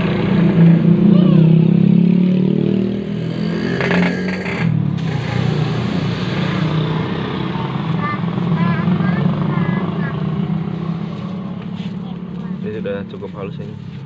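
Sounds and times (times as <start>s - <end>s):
engine running: 3.1s - 14.0s.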